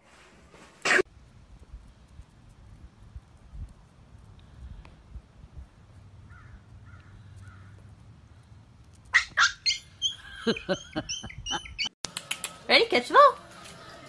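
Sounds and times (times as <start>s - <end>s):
high-pitched animal calls: 9.1s - 11.9s
soft chirps: 9.2s - 12.0s.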